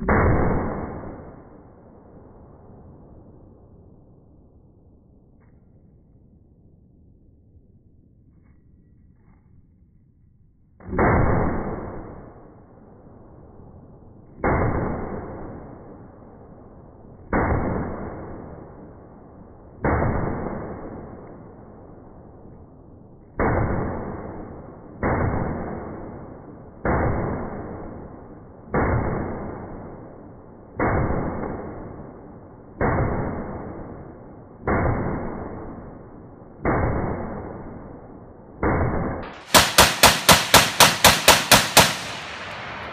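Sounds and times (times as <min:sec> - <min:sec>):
slow-motion gunshot booms: 0:00.0 - 0:03.8, 0:10.8 - 0:13.4, 0:14.3 - 0:19.0, 0:19.7 - 0:22.2, 0:23.2 - 0:42.9
rapid sharp gunshots: 0:38.6 - 0:42.9.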